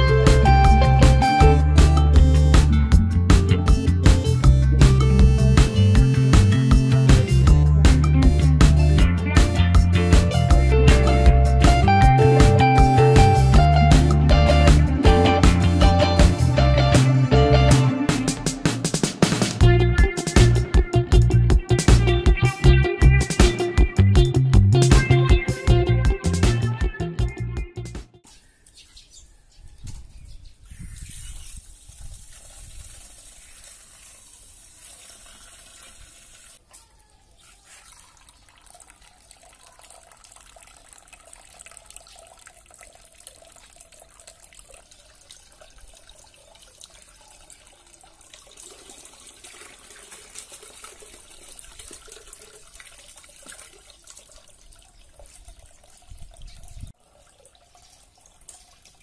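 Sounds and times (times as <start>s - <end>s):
water splashing into aquarium: 31.3s - 59.0s.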